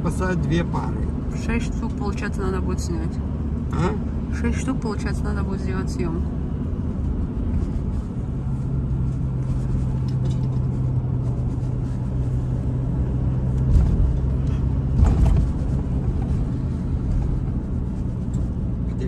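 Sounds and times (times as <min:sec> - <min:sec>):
car engine and road hum: 0:00.0 - 0:19.0
loud thumps: 0:14.9 - 0:16.2.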